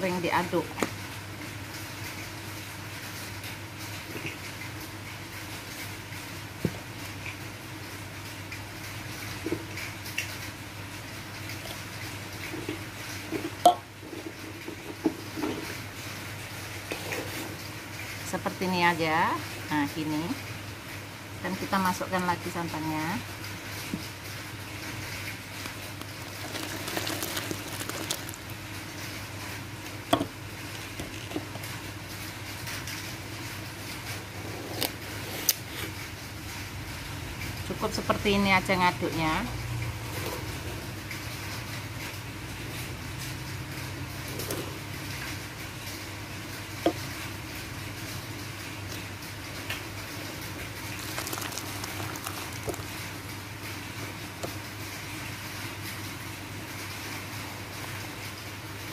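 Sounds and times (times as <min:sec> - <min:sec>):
liquid pouring and splashing: 0:23.4 - 0:34.4, 0:44.7 - 0:56.0.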